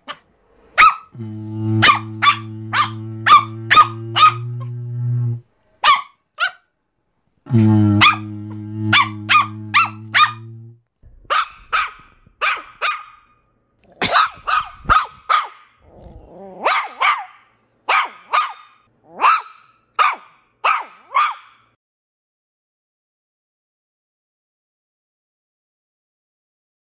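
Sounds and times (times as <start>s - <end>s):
low steady hum: 0.4s - 5.6s, 7.5s - 11.4s
small dogs yapping: 11.3s - 13.1s, 14.0s - 21.6s.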